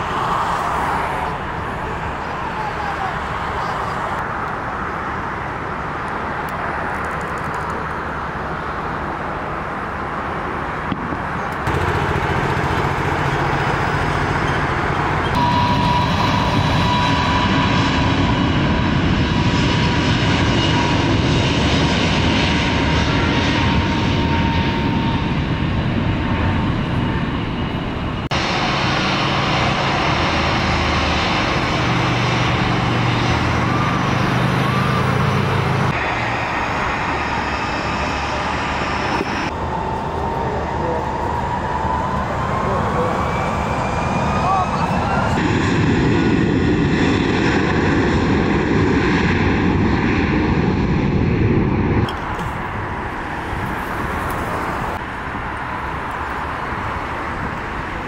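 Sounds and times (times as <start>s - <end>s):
jet engine whine: 0.0s - 58.0s
low engine rumble: 10.9s - 18.2s.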